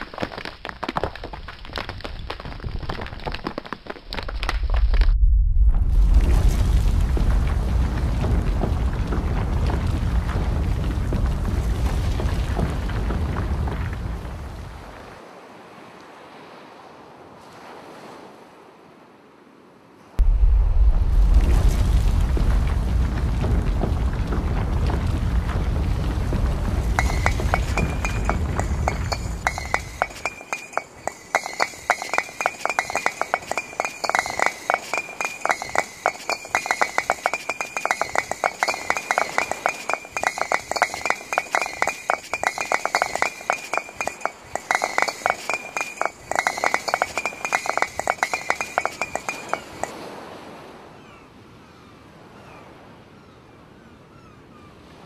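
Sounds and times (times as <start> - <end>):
rapid ringing clinks: 27.0 - 50.0.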